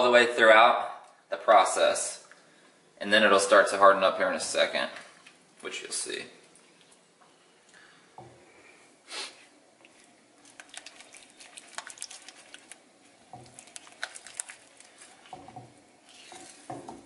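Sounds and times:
spatula stirring wet eggs: 4.5 - 5.7, 9.5 - 17.0
spatula scraping pan: 14.8 - 17.0.

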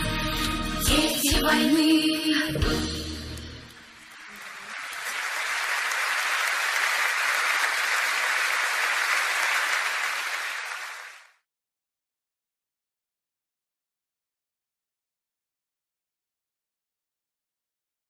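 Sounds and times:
audience applauding: 3.6 - 11.4.

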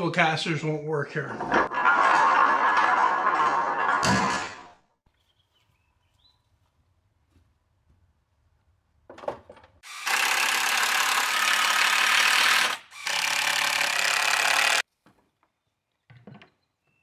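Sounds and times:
motor-driven tool running: 9.8 - 14.8.

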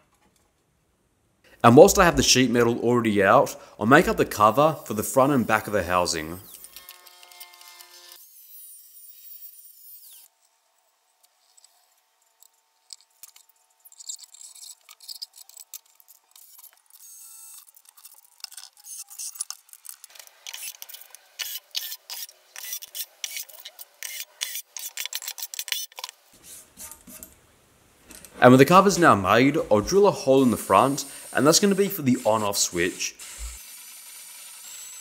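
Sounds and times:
angle grinder cutting sheet metal: 4.1 - 10.4, 28.5 - 35.0
drilling through sheet metal: 28.6 - 35.0.

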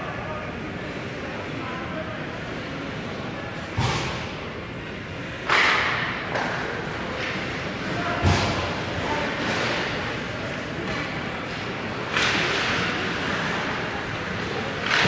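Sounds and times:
puck and sticks hitting boards: 5.4 - 7.4, 8.2 - 10.0, 10.8 - 13.8, 14.4 - 15.0.

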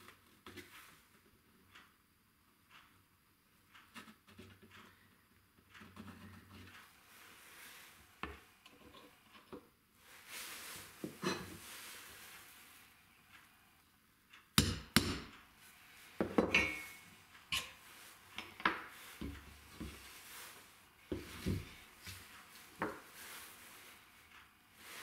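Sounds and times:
hammer tapping on metal tool: 14.6 - 15.3
tools knocking on wooden workbench: 16.2 - 16.6.

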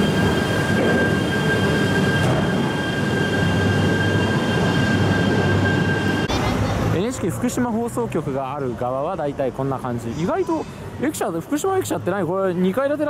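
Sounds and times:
train rumble: 0.0 - 8.4.

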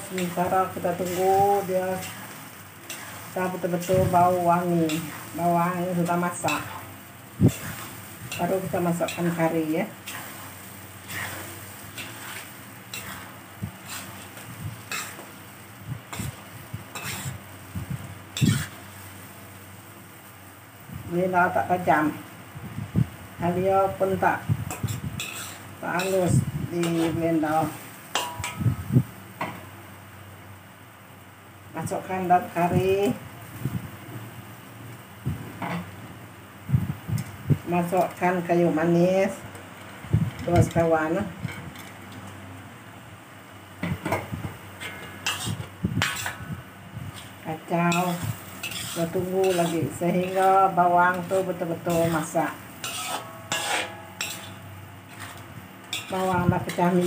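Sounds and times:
paste sizzling: 0.0 - 19.9, 24.2 - 28.6, 44.8 - 57.0
ladle scraping a wok: 0.1 - 19.2, 24.6 - 28.9, 43.9 - 57.0.

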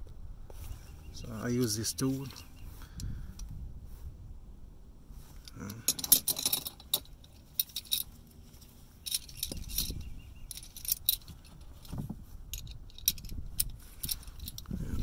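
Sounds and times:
metal wrench clinking and jangling: 5.4 - 11.9, 12.5 - 15.0.

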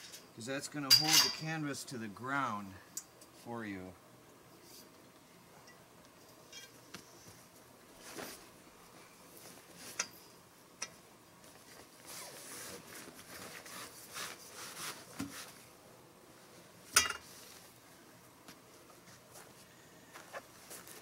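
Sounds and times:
sharp metallic clank: 0.9 - 1.4
fabric rustling and scraping: 6.3 - 10.2, 11.4 - 15.7.

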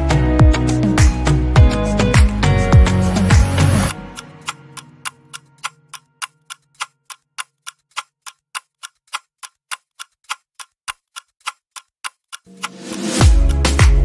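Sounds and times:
music with heavy beat: 0.0 - 4.0, 12.5 - 14.0
steady ticking: 0.0 - 14.0.

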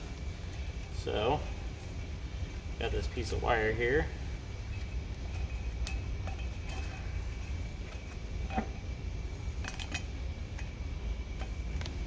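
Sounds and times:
steady low hum: 0.0 - 12.0
wire clinking against metal: 4.6 - 8.9, 9.5 - 11.6.

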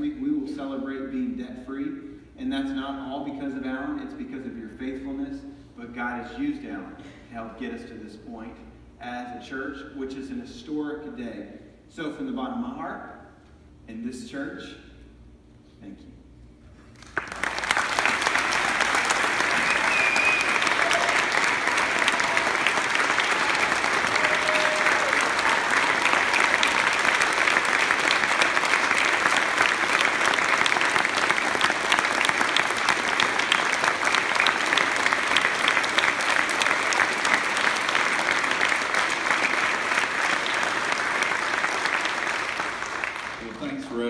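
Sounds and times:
crowd applauding: 17.0 - 44.0.

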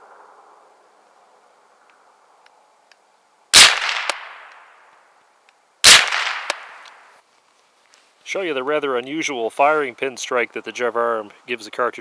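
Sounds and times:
rifle shots echoing: 3.6 - 4.7, 5.8 - 7.0
sharp rifle click: 3.6 - 4.7, 5.8 - 7.0.

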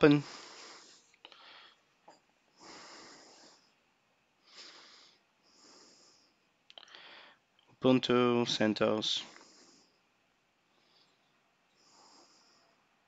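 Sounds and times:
faint short breaths: 0.2 - 1.9, 2.5 - 7.5.

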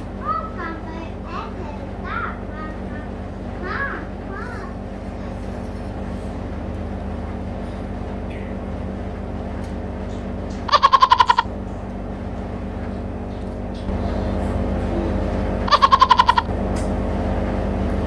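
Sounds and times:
steady hum: 0.0 - 18.0
fast chirping call: 10.7 - 11.5, 15.7 - 16.5.

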